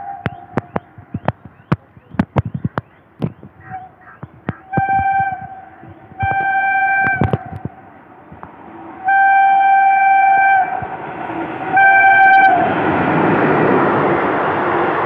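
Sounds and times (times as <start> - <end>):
train coaches rushing past: 0.0 - 15.0
locomotive horn blasts: 4.6 - 7.9, 9.0 - 10.9, 11.6 - 12.8.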